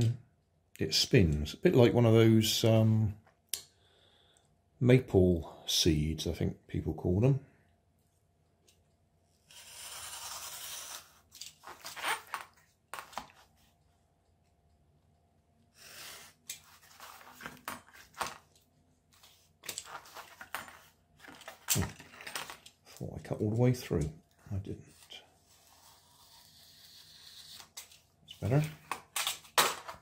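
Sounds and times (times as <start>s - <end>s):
knife cutting cardboard: 9.5s - 11.2s, 15.8s - 18.2s.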